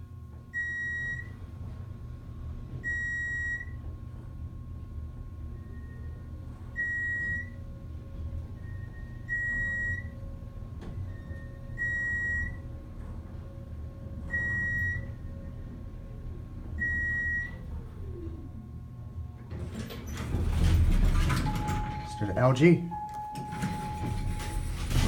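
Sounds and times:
elevator rumble and whine: 0.0 - 25.0
high electronic elevator beep: 0.6 - 1.3, 2.8 - 3.8, 5.5 - 7.6, 8.6 - 10.2, 11.0 - 12.6, 14.3 - 15.2, 16.8 - 17.7, 21.4 - 25.0.

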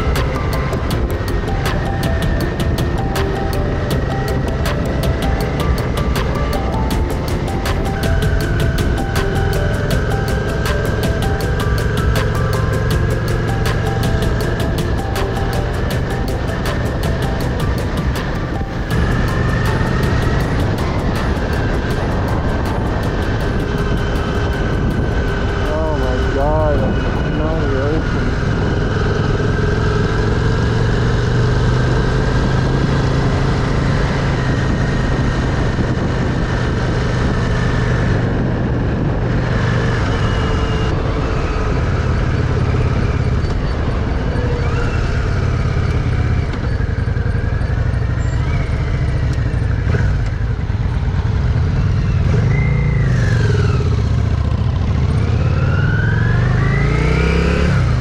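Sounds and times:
motorcycle engine running: 0.0 - 58.0
wind rush: 14.3 - 46.4.

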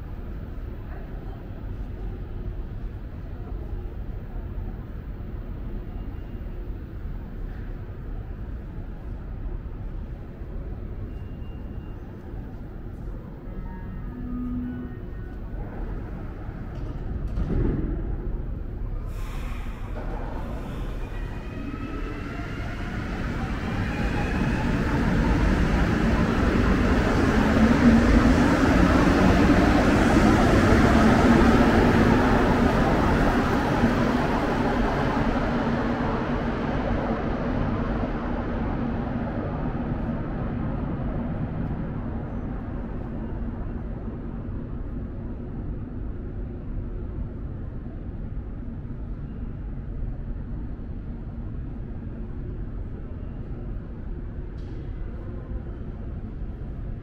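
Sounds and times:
metro train rumbling on rubber tyres: 0.0 - 48.4
metro train motors whining: 18.2 - 38.4.

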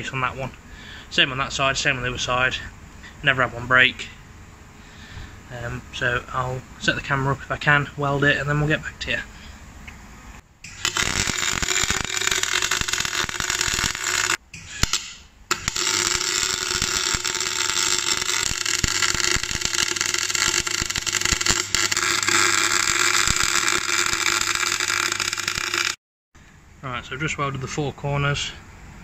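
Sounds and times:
welding arc crackling: 10.6 - 26.0.

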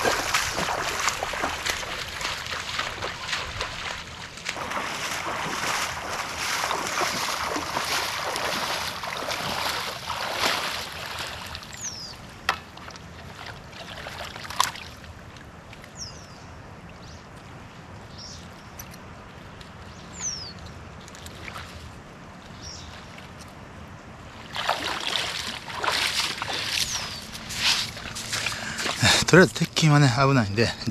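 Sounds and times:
water splashing and sloshing: 0.0 - 30.9.

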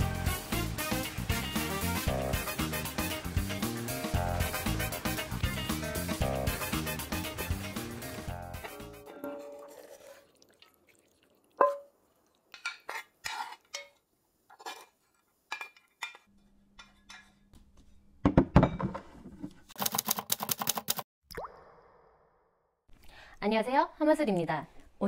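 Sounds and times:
utensils scraping pans: 8.6 - 10.3, 12.6 - 17.5.

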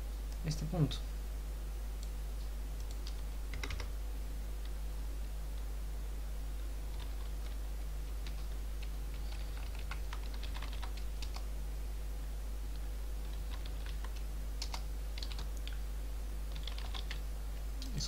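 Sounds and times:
steady low hum: 0.0 - 18.0
computer keyboard typing: 2.8 - 3.9, 6.9 - 7.6, 8.2 - 11.5, 13.2 - 15.8, 16.5 - 17.2.

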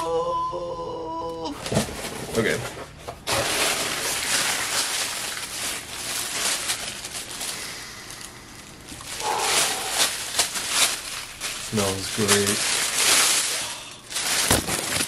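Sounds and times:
wrapping paper rustling: 1.6 - 15.0
person sniffing: 9.2 - 10.1.

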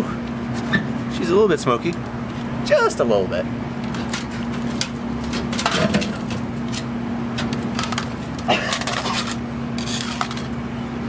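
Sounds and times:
steady low hum: 0.0 - 11.0
panel scraping in microwave oven: 3.9 - 10.6.

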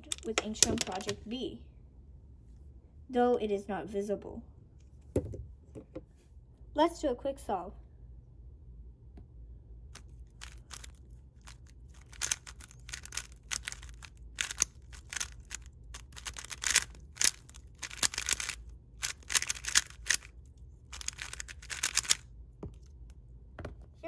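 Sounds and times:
puzzle cube plastic clicks: 0.0 - 1.2, 10.0 - 22.9.

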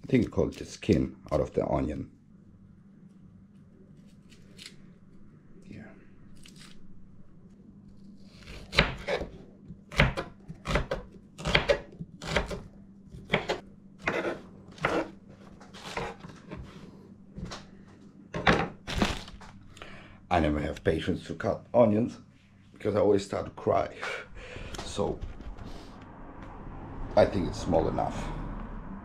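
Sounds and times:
knife chopping on wooden board: 8.5 - 9.3, 9.9 - 12.6, 13.2 - 15.2, 15.8 - 16.7.

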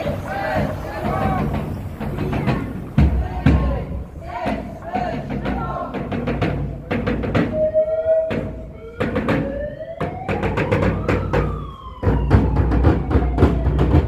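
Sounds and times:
frame drum beating: 0.0 - 7.7
siren-like rising and falling tone: 7.4 - 14.0.

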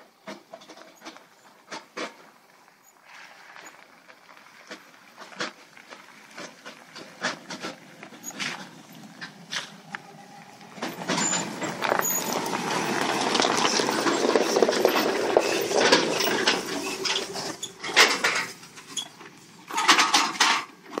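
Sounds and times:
bushes scraping along vehicle: 0.2 - 20.7
dense crackle of clicks: 0.6 - 21.0
empty trailer rattling: 4.7 - 21.0
vehicle engine crawling past: 6.2 - 19.0.

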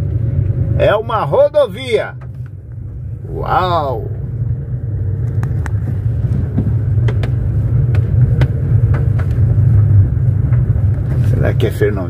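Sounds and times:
car engine and tyres rumbling: 0.0 - 12.0.

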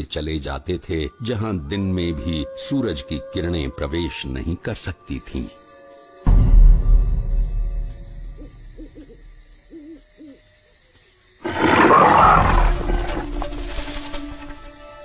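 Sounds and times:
owl hooting: 8.2 - 10.7
big cat roar: 11.4 - 13.3.

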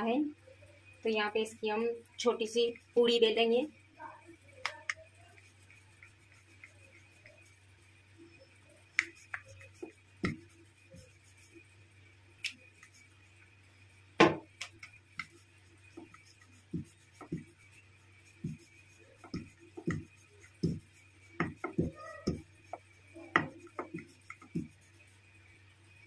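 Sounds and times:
steady low hum: 0.0 - 26.0
rolling pin knocking on board: 14.2 - 14.5, 21.4 - 22.4.

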